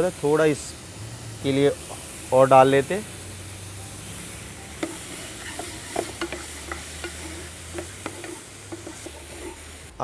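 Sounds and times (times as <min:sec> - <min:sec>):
mushrooms sizzling in a frying pan: 0:00.0 - 0:10.0
spatula scraping and tapping pan: 0:04.8 - 0:09.8.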